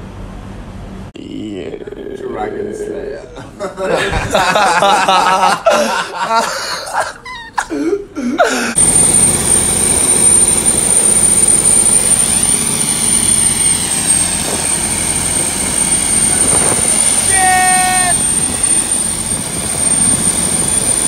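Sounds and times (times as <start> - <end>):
thin high whine: 8.7 - 21.0
motor boat engine: 8.8 - 21.0
water rushing along hull: 8.8 - 21.0.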